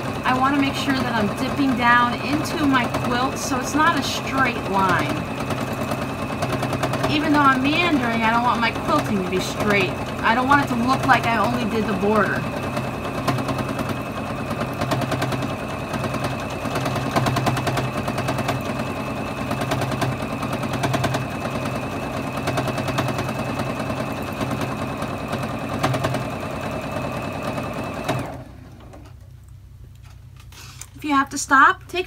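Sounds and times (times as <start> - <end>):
sewing machine stitching fast: 0.0 - 29.0.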